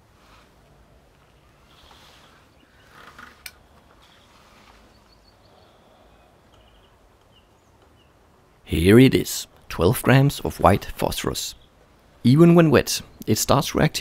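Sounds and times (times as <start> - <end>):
faint bird chirps: 1.2 - 3.3, 4.0 - 8.2.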